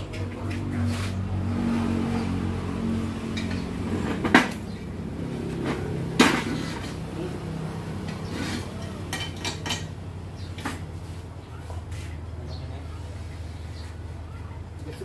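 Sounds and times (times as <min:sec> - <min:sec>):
metal clanks: 0:05.5 - 0:07.1, 0:08.0 - 0:10.8.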